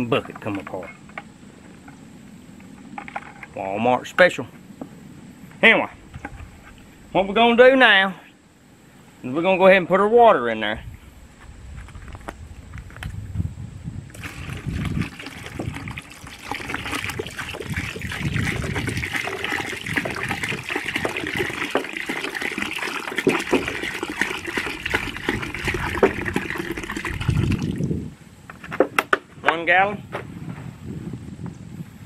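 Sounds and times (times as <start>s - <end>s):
water pouring into bucket: 14.1s - 27.9s.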